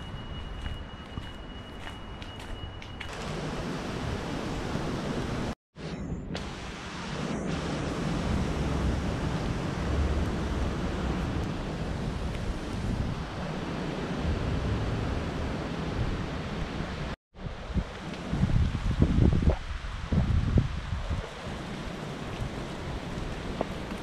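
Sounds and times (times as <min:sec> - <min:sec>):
wind buffeting microphone: 0:08.2 - 0:24.0.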